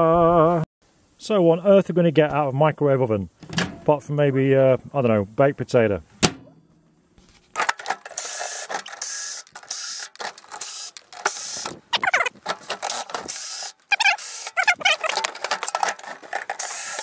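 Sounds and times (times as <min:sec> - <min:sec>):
cordless drill bursts: 0:08.1 - 0:11.8, 0:12.8 - 0:14.6, 0:16.5 - 0:17.0.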